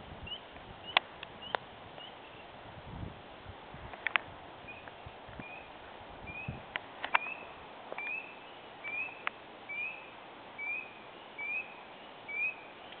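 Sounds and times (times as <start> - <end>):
steady hiss: 0.0 - 13.0
frog calling: 6.3 - 13.0.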